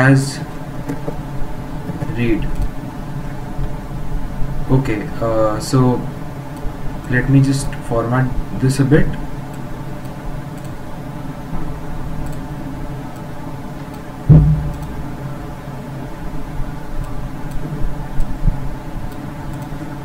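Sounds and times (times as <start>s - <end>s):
microphone hum and hiss: 0.0s - 20.0s
loud thump: 14.3s - 15.0s.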